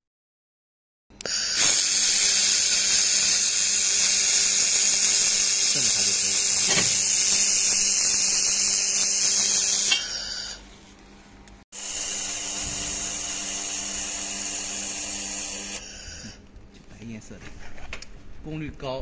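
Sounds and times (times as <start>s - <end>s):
laser welder hiss and whine: 1.2s - 10.6s, 11.8s - 16.4s.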